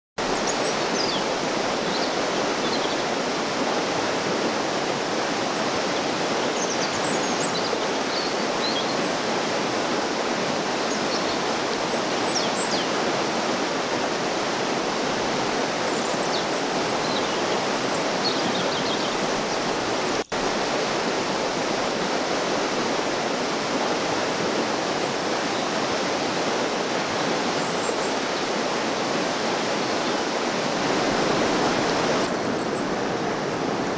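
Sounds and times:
birds chirping: 0.2 - 3.1, 15.9 - 20.6, 29.8 - 33.0
river rushing over rocks: 0.2 - 33.9.

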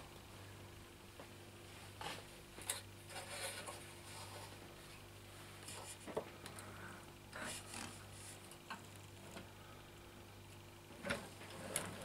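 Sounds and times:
handling rubbing and rustling: 1.7 - 6.3.

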